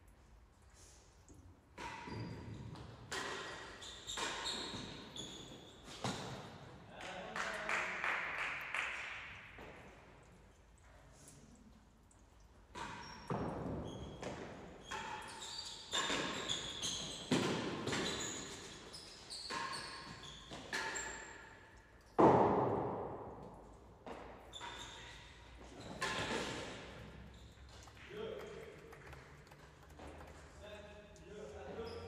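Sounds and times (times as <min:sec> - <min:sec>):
ball struck by rackets: 0:22.2 - 0:23.3.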